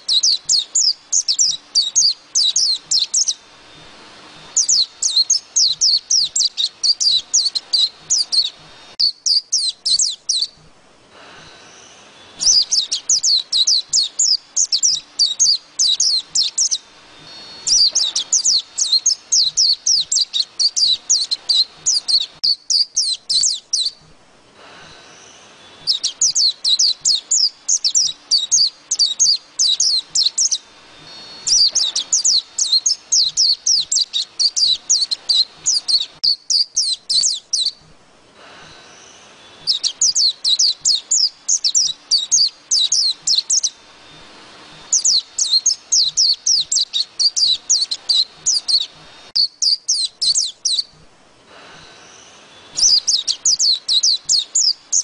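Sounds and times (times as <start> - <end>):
bird warbling: 11.6 - 24.0.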